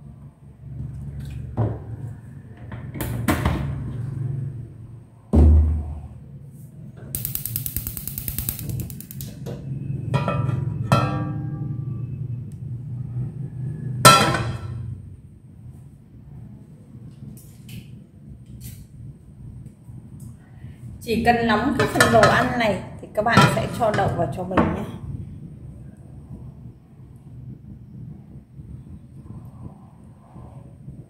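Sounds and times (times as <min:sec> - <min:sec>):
rapid ticks: 0:07.2 - 0:09.3
sharp clatter: 0:07.2 - 0:09.4.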